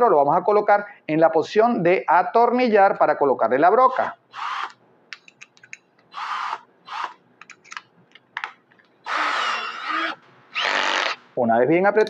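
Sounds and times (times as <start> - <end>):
drill chuck ratcheting: 4.4 - 4.8, 6.2 - 7.6, 9.1 - 11.2.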